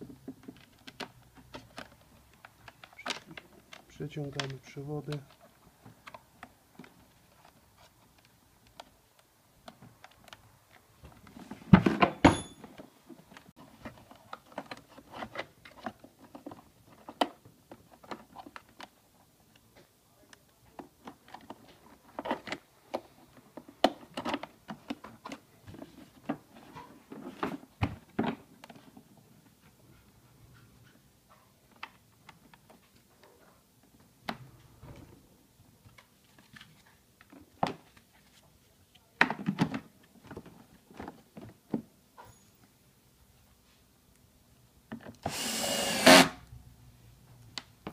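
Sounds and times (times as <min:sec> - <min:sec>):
plastic parts clicking and knocking: 0:00.0 - 0:29.2, 0:39.2 - 0:41.9.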